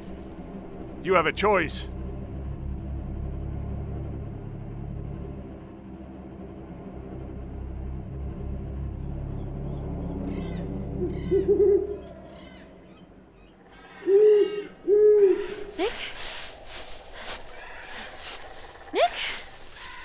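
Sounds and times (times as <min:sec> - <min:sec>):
low rumble: 0:01.9 - 0:11.2
owl hooting: 0:10.3 - 0:12.6, 0:13.7 - 0:20.0.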